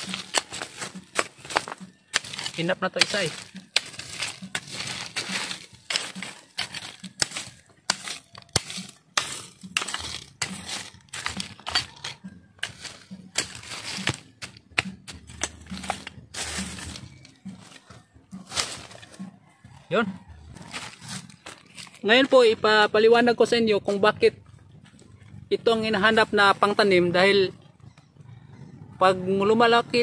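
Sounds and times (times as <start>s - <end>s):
machete chopping into soil: 12.6s - 17.0s.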